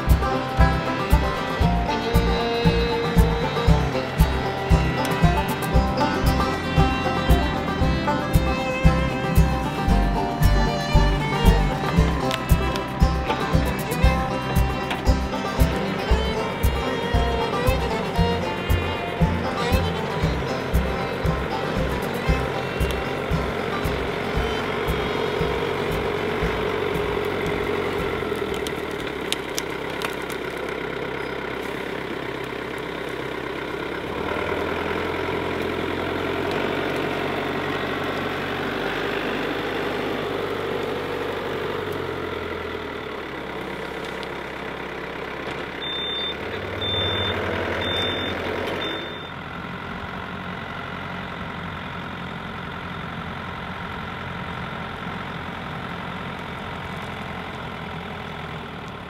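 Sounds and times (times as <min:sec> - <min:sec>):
tractor diesel engine running: 0:00.0 - 0:59.0
short high beeps: 0:45.8 - 0:49.4.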